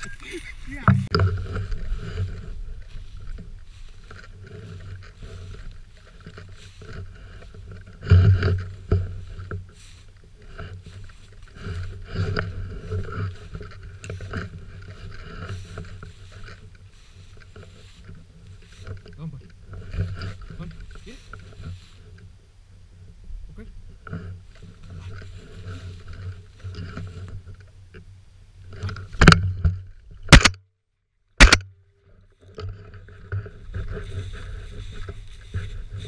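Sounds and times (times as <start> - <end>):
footsteps through dry grass: 0.0 - 27.7, 32.3 - 36.0
camera handling bumps: 28.8 - 30.6, 31.4 - 31.7.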